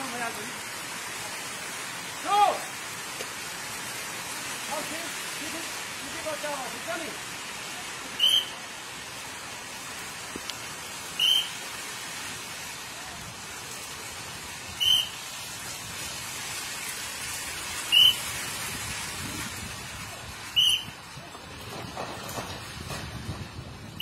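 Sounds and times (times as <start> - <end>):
steady rain hiss: 0.0 - 24.0.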